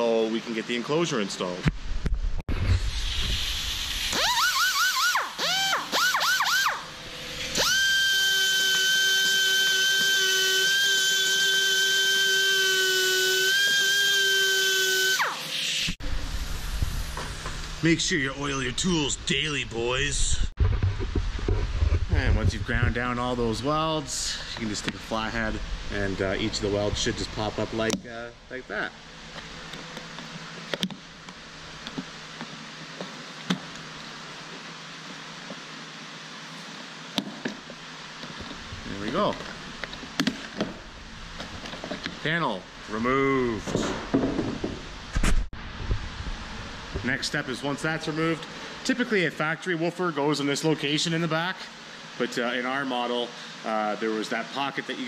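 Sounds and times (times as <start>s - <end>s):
steady low hiss: 0.0s - 4.3s, 15.9s - 55.0s
die grinder high whine: 4.0s - 16.0s.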